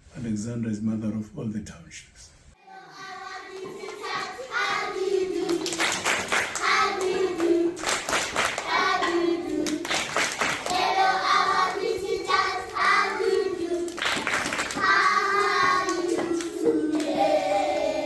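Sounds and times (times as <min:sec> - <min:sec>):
children singing in unison: 0:02.6 - 0:18.0
hand clapping: 0:05.4 - 0:10.9, 0:13.2 - 0:17.2.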